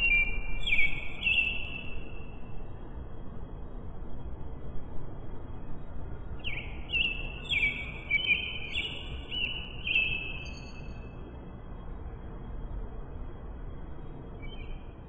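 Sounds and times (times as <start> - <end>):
bird singing: 0.0 - 2.4, 6.4 - 11.1, 14.4 - 15.0
low background rumble: 0.0 - 15.0.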